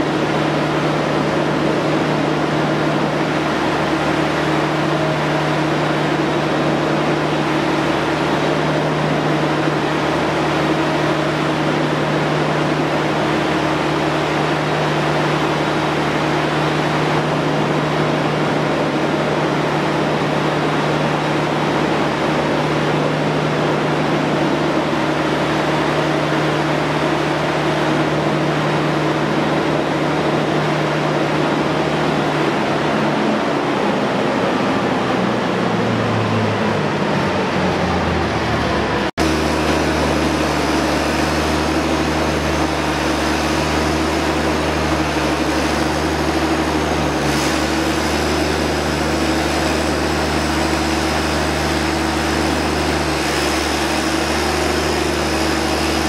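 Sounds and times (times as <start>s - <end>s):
gas engine generator running: 0.0s - 56.0s.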